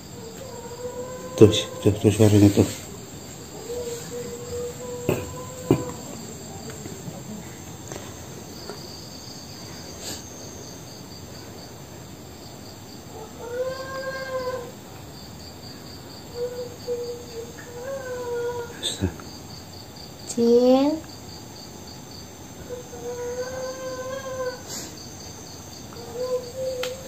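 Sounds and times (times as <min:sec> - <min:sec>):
crickets chirping: 0:00.0 - 0:27.0
high crying voice wailing: 0:13.4 - 0:14.7, 0:22.8 - 0:24.6.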